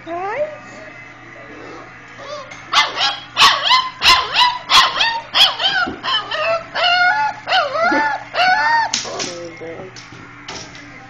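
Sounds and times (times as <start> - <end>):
puppy yipping and barking: 2.7 - 9.0.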